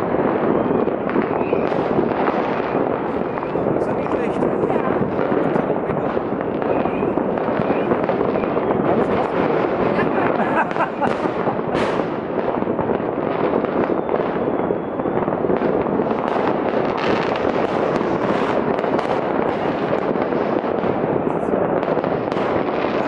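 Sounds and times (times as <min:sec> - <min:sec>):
fireworks crackling and banging: 0:00.0 - 0:23.0.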